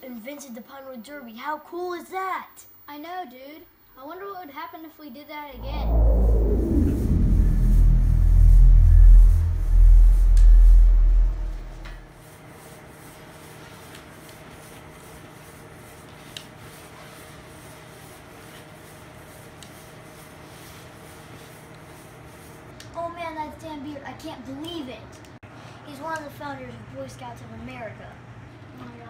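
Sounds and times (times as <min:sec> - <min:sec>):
faint steady hum: 0:05.4 - 0:12.1
falling pitch sweep: 0:05.6 - 0:12.1
pulsing low rumble: 0:05.6 - 0:12.1.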